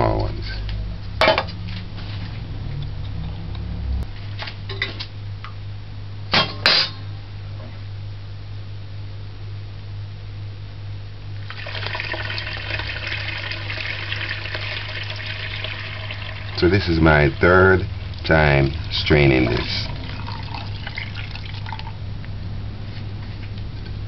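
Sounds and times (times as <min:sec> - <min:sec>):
liquid pouring through strainer: 0:11.4 - 0:22.0.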